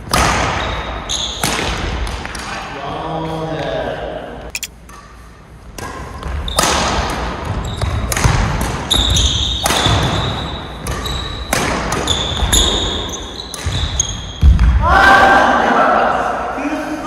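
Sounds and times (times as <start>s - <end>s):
shoes squeaking on court floor: 0.6s - 1.5s, 7.4s - 8.1s, 8.9s - 14.5s
racket hitting shuttlecock: 1.4s - 2.4s, 4.7s - 13.8s.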